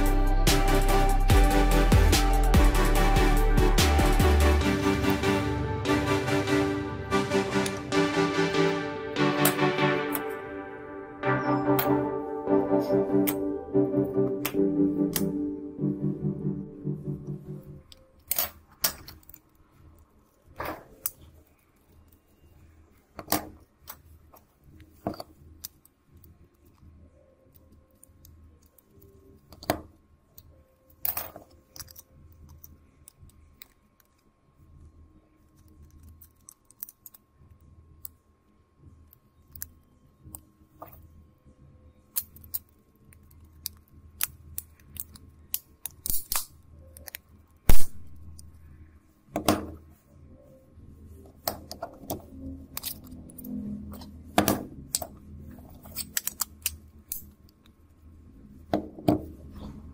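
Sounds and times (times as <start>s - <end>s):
plastic parts clicking and tapping: 27.5s - 34.3s, 35.4s - 38.2s, 42.1s - 48.5s, 51.3s - 57.8s.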